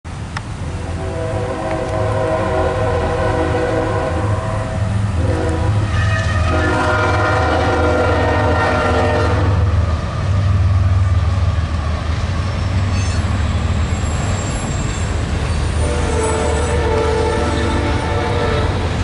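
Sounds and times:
diesel locomotive rumble: 0:00.1 - 0:19.0
locomotive air horn: 0:00.7 - 0:09.8, 0:15.7 - 0:19.0.

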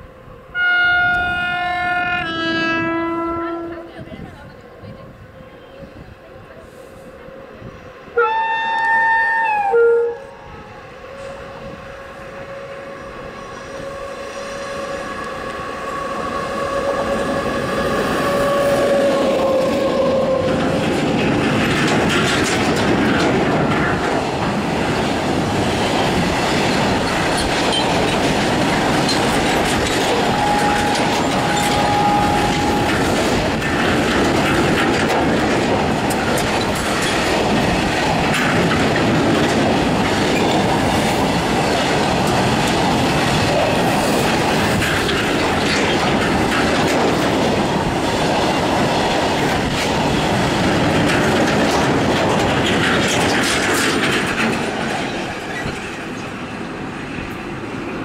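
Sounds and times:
locomotive horn: 0:00.4 - 0:03.9, 0:07.0 - 0:20.7, 0:30.1 - 0:33.4
freight train wheels clattering: 0:12.0 - 0:58.0
wheel squeal: 0:12.9 - 0:17.2, 0:30.3 - 0:33.0.

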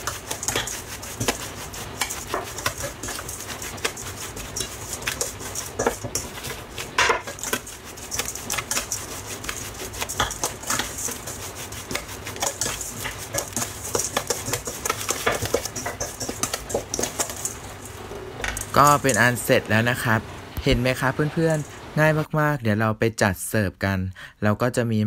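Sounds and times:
metal spoon scraping steel bowl: 0:00.0 - 0:19.7.

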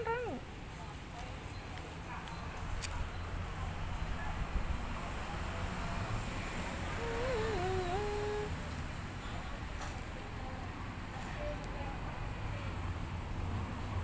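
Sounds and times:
puppy whimpering: 0:07.0 - 0:08.5.

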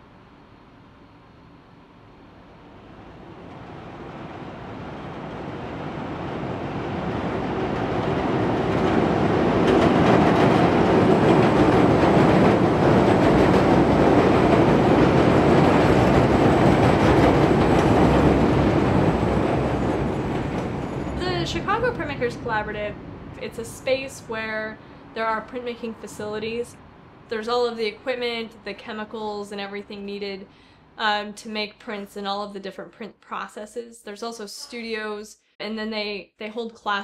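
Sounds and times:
elevated train passing: 0:00.1 - 0:28.3.

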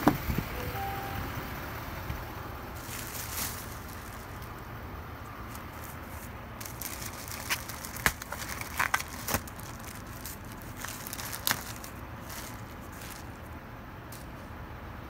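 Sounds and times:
plastic covers crinkling: 0:02.8 - 0:04.6, 0:05.4 - 0:13.5.

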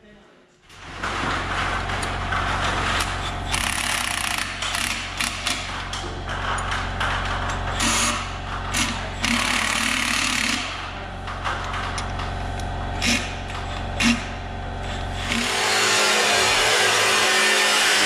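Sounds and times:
steady low hum: 0:00.1 - 0:17.3
cordless ratchet running: 0:01.9 - 0:10.9.

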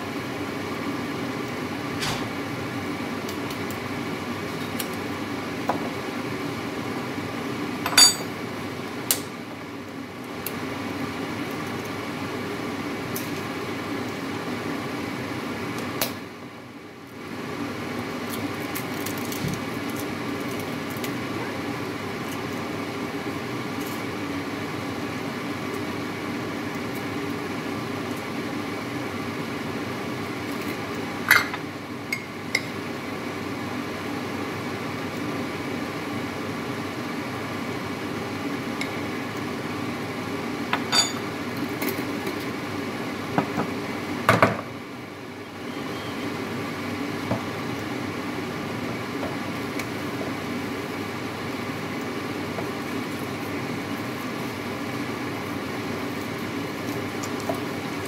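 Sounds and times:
appliance hum: 0:00.0 - 0:58.0
kitchenware clinking: 0:07.9 - 0:08.3, 0:40.8 - 0:41.2.

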